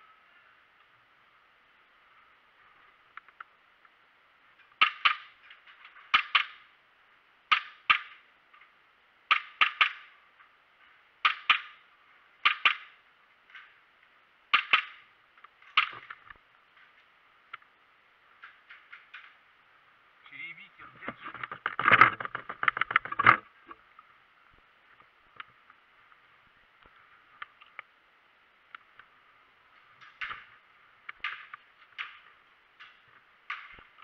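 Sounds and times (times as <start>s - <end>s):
airsoft gun sharp shots: 7.5s - 8.2s, 12.4s - 13.0s.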